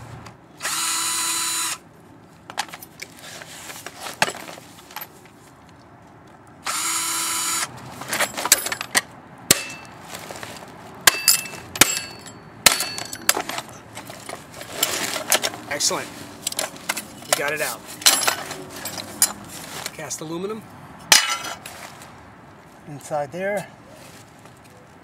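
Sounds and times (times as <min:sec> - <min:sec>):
power drill motor running: 0:00.6 - 0:01.8, 0:06.6 - 0:07.7.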